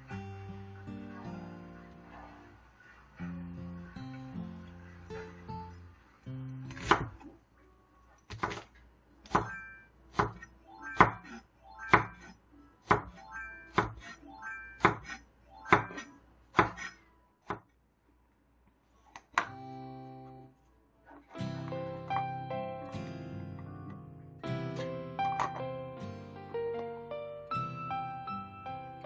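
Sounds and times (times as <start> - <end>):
knife chopping on wooden board: 6.7 - 7.2, 8.3 - 8.7, 9.3 - 12.3, 14.8 - 17.6.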